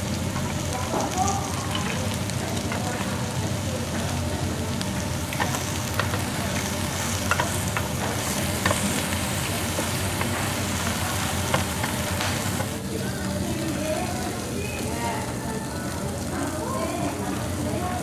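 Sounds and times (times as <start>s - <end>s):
meat sizzling on grill plate: 0.0s - 18.0s
tongs clicking against plate: 5.3s - 12.7s.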